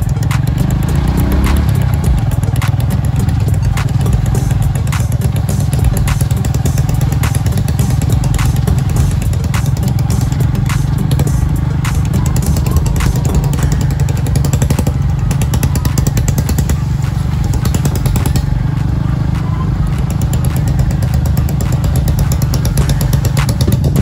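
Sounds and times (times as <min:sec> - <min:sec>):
motorcycle engine running: 0:00.0 - 0:24.0
sharp knocks and clatter: 0:20.2 - 0:24.0.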